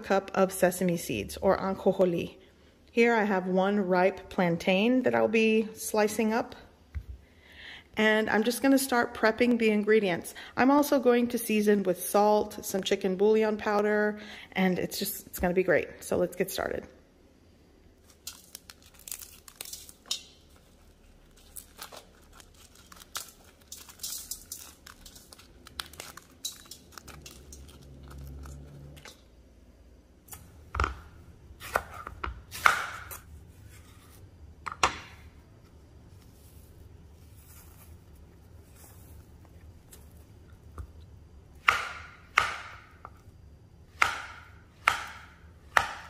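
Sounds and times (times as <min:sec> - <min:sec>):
dried chiles crackling and tearing: 0:18.0 - 0:29.2.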